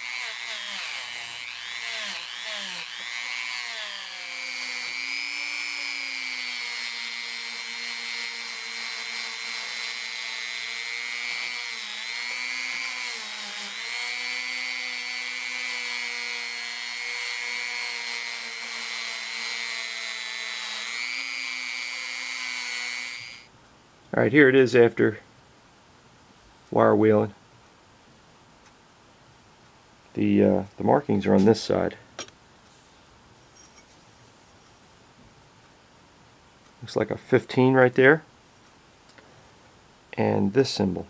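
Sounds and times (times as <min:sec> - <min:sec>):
rotary tool wire brush whining: 0:00.0 - 0:23.5.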